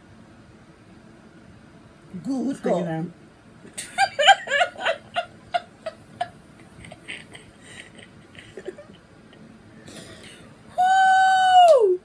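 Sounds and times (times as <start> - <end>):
women laughing: 3.7 - 9.0.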